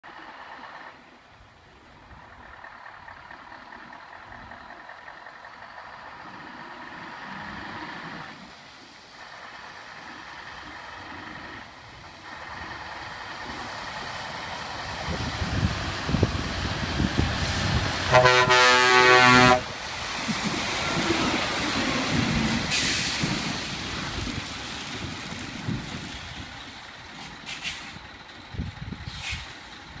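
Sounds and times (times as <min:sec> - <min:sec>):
lorry diesel engine: 0:00.0 - 0:30.0
lorry horn blast: 0:18.1 - 0:19.7
air brake hiss: 0:22.7 - 0:23.5, 0:27.2 - 0:28.0, 0:29.0 - 0:29.7.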